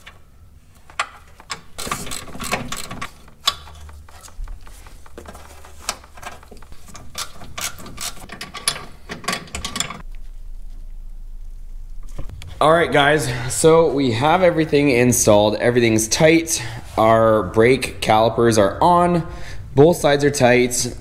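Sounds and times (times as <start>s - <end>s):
ratchet wrench clicking: 1.0s - 3.7s.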